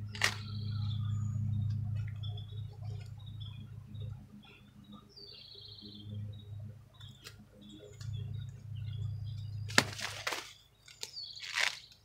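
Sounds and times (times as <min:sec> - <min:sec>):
birds chirping: 0:00.0 - 0:12.0
corn ear snapping: 0:00.1 - 0:00.5, 0:09.7 - 0:12.0
leaves rustling: 0:09.7 - 0:12.0.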